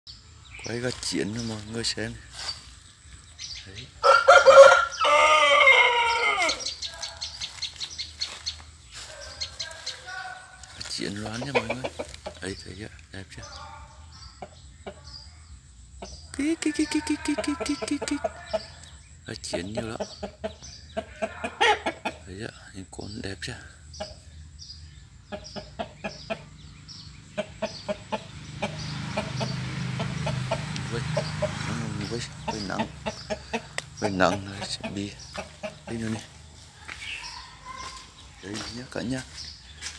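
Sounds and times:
roosters clucking: 0.1 - 39.9
rooster crowing: 4.0 - 7.2.

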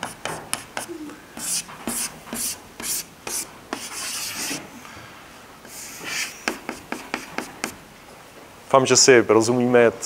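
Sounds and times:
chalk scratching on a blackboard: 0.0 - 4.7, 5.7 - 7.8
chalk tapping on a blackboard: 0.0 - 4.7, 5.7 - 7.8.

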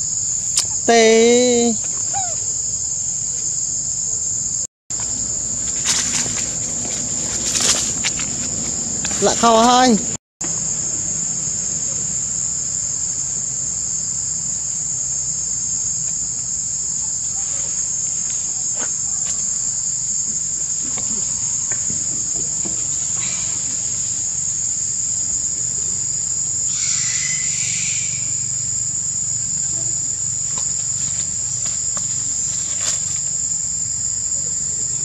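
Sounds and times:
insect chorus drone: 0.0 - 35.0
faint scuffs: 5.6 - 9.4.

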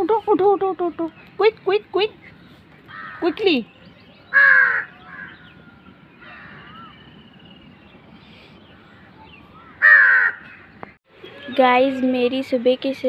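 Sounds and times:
faint bird calls: 2.2 - 7.7
crow cawing: 2.9 - 3.4, 4.3 - 5.4, 9.6 - 10.5.

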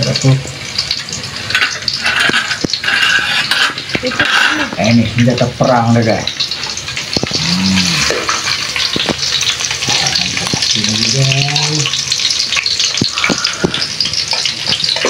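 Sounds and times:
garlic sizzling in oil: 0.0 - 15.0
metal ladle scraping wok: 1.3 - 4.9.

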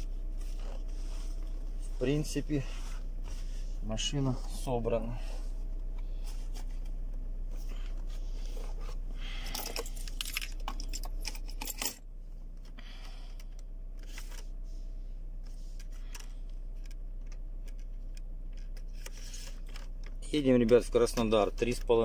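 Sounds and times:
steady low hum: 0.0 - 22.0
phone handling clicks and rattles: 15.8 - 22.0.

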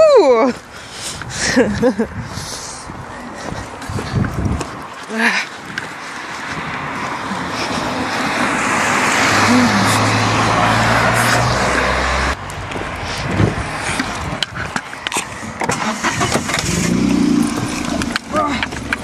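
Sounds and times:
car driving past: 6.8 - 13.9, 15.9 - 18.9.

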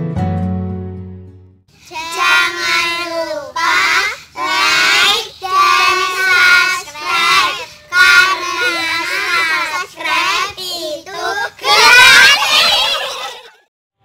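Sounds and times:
girls singing in unison: 1.9 - 12.4.

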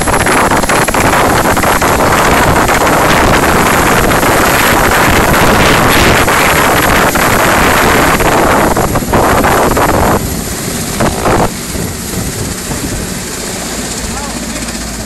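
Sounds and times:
wind buffeting microphone: 0.0 - 14.1
helicopter rotor and turbine noise: 0.0 - 15.0.

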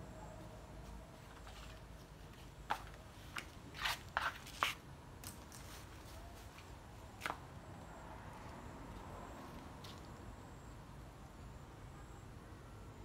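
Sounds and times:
footsteps on tiles: 1.4 - 4.8.

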